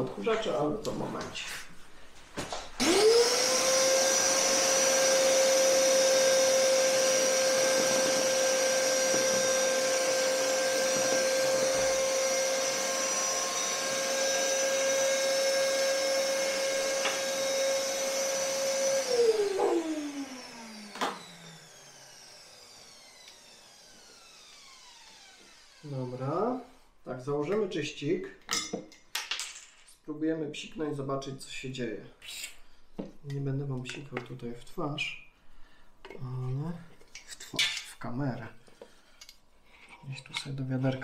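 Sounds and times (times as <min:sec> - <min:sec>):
vacuum motor winding down: 0:02.8 - 0:26.4
vacuum cleaner whining: 0:02.8 - 0:26.5.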